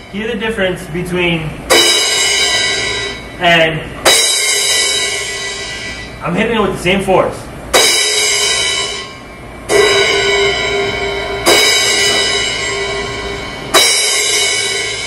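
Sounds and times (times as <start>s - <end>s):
cymbal hits ringing: 1.6s - 6.3s, 7.7s - 15.0s.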